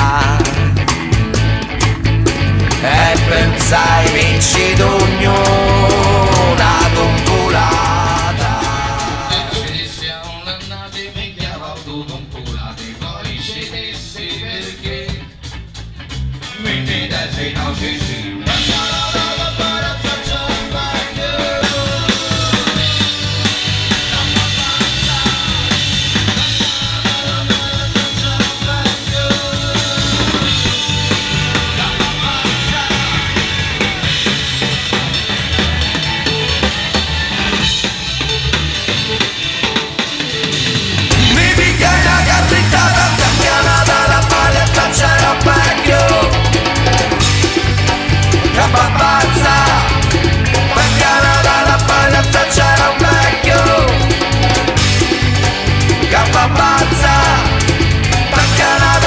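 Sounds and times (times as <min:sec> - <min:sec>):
live rock band playing: 0:00.0 - 0:59.0.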